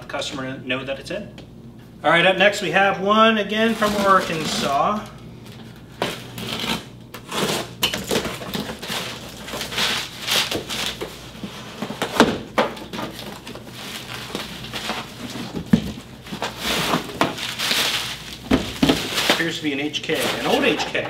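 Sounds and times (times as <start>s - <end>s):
packing paper and bubble wrap rustling: 3.5s - 21.0s
cardboard scraping: 3.6s - 5.1s, 5.9s - 21.0s.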